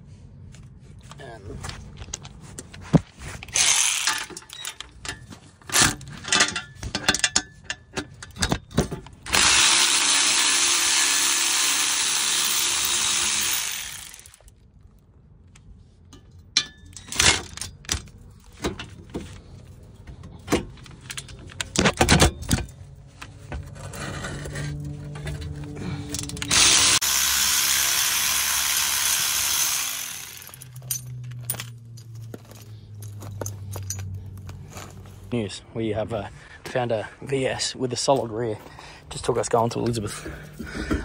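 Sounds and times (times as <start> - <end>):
cordless ratchet motor running: 3.5 - 4.3, 9.3 - 14.5, 26.1 - 30.8
clanks of tools being handled: 3.5 - 9.2.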